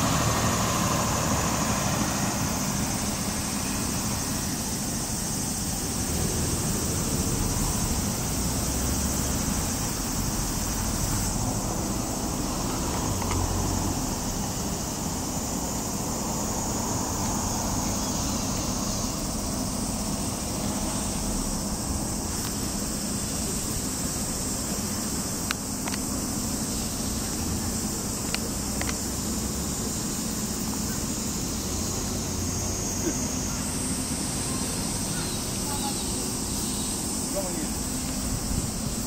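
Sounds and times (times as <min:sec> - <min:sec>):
car traffic passing: 0:00.0 - 0:39.0
faint sharp clicks: 0:28.2 - 0:29.0.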